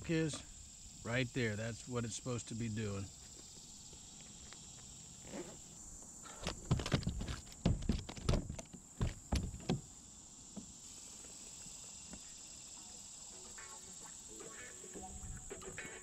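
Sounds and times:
high insect buzz: 0.0 - 16.0
knocks on plastic kayak deck: 6.7 - 9.8.

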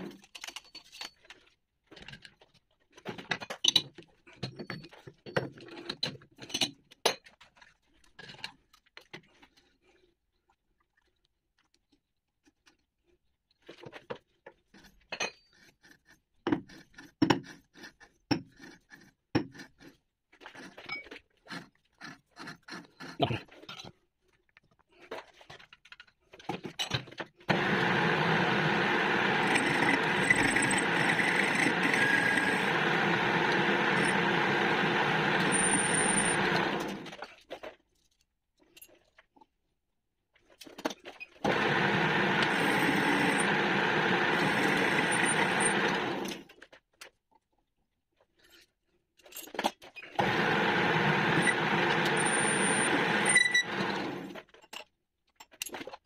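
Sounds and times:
metal lathe whining: 27.5 - 37.1, 41.5 - 46.4, 50.2 - 54.4.

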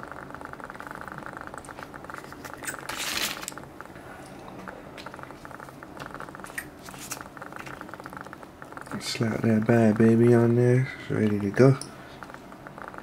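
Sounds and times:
faint steady crackle: 0.0 - 13.0
packaging crinkling: 1.7 - 3.6.

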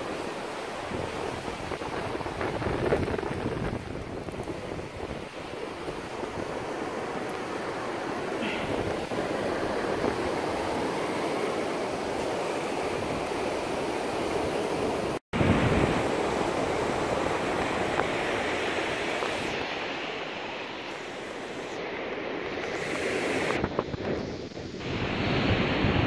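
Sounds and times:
ocean surf: 0.0 - 26.0
wind: 0.0 - 26.0.

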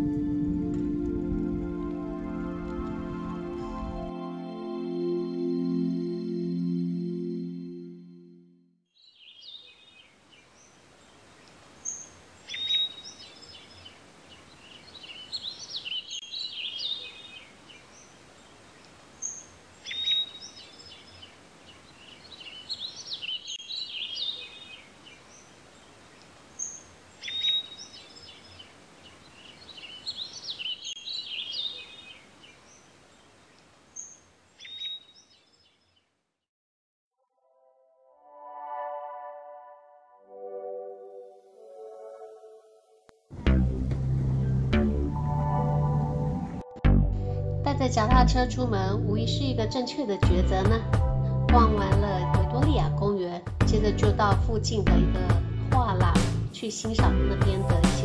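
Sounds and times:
songbirds singing: 8.9 - 36.1
steady outdoor hiss: 9.0 - 35.7.

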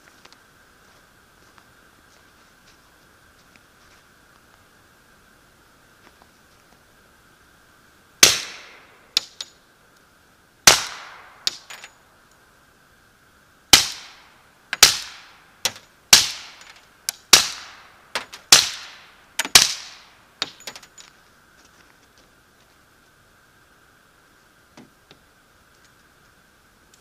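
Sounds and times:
suppressed pistol shots: 8.2 - 8.8, 10.7 - 11.7.

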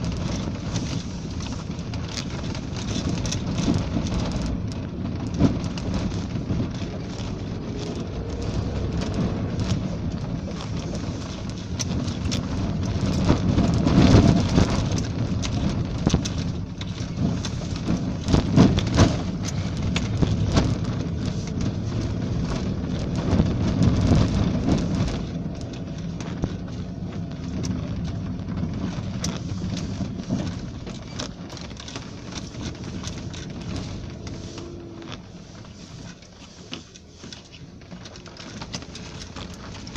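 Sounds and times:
vehicle engine and tyres rumbling: 0.0 - 39.9
vehicle knocks and rattles: 0.0 - 39.9.

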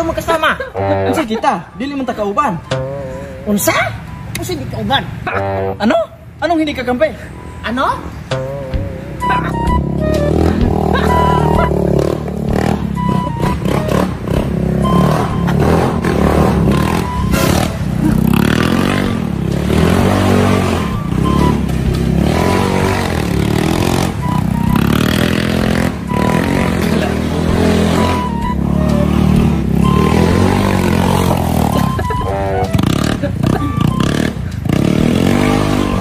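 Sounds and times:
music: 2.6 - 3.5, 8.3 - 17.3, 18.9 - 36.0
motorcycle engine revving: 8.3 - 36.0.

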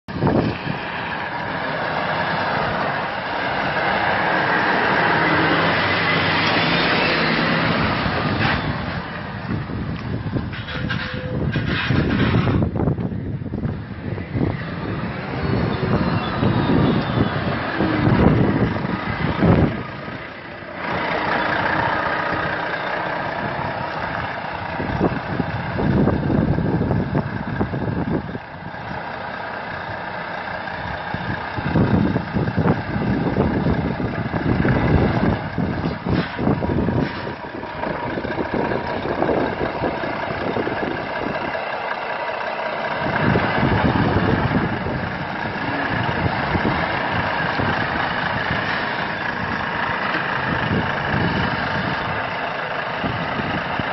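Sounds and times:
truck engine idling: 0.1 - 53.9.

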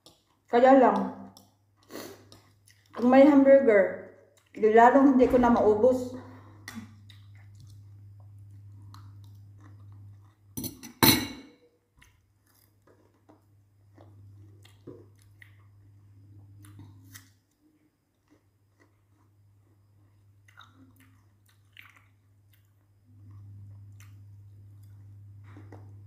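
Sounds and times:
person chewing: 0.0 - 0.5, 1.3 - 3.0, 4.2 - 4.6, 6.5 - 10.6, 11.9 - 26.0
low steady hum: 0.0 - 26.0.

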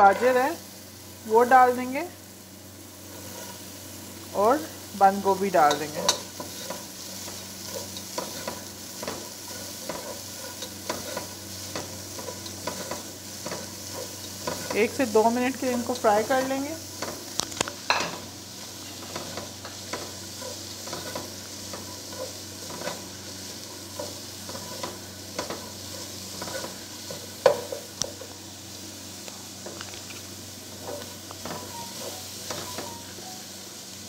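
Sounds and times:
vegetables sizzling in oil: 0.0 - 34.0
spatula scraping and tapping pan: 5.6 - 28.3, 30.8 - 33.0.

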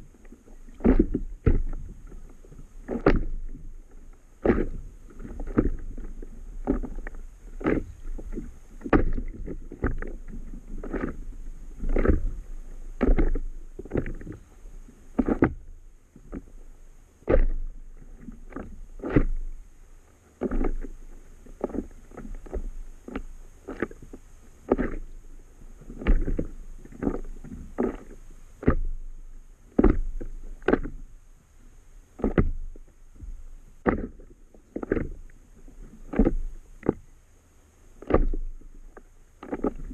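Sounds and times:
waves slapping against board: 0.0 - 15.7, 17.2 - 19.6, 38.0 - 39.9
low rumble of water: 0.0 - 39.9.

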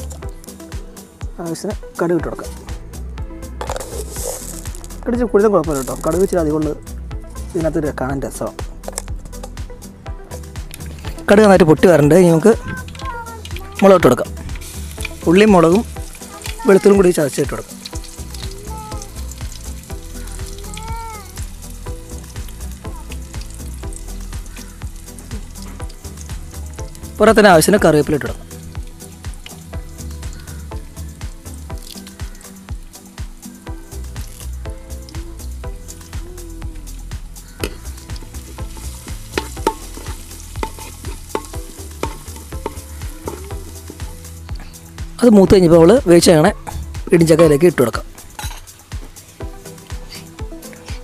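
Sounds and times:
irregular crackles: 3.6 - 5.0, 5.7 - 6.3, 12.5 - 27.3, 31.7 - 34.6
food sizzling in hot oil: 3.6 - 6.4, 10.4 - 45.4, 46.9 - 51.0
spatula scraping metal pan: 38.7 - 43.4.

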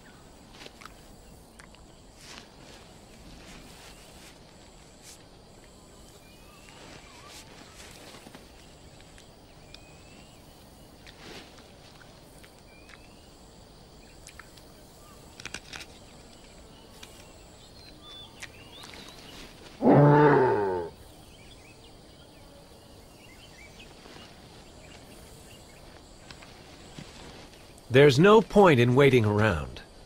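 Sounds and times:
loud pitched animal call: 19.8 - 21.0.

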